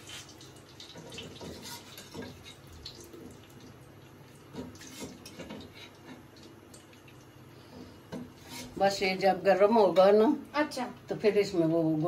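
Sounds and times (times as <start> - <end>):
liquid dripping and splashing: 0.0 - 7.4.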